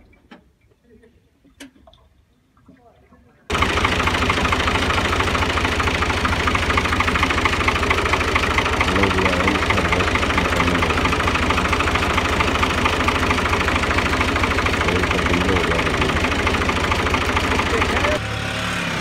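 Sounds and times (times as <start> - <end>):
tractor diesel engine idling: 3.5 - 18.3.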